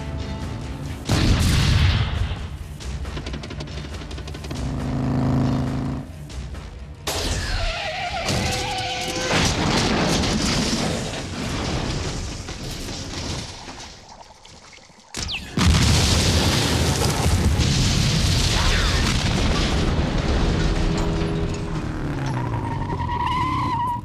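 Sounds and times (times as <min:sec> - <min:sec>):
dramatic film score: 0:00.0 - 0:15.7
truck engine rumble: 0:02.6 - 0:07.0, 0:19.4 - 0:24.0
loud truck crash: 0:07.1 - 0:13.7, 0:15.6 - 0:23.8
metal screeching: 0:07.4 - 0:09.4, 0:22.1 - 0:24.0.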